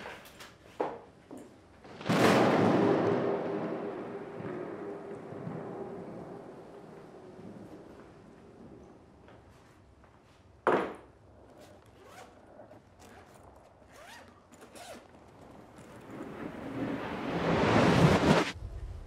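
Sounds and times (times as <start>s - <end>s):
zipper clicks and rasps: 11.3s - 16.1s.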